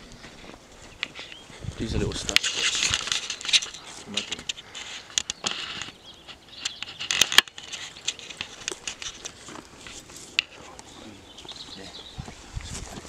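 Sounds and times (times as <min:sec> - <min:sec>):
branches rustling and crackling: 0:00.0 - 0:13.0
twigs snapping: 0:02.3 - 0:11.7.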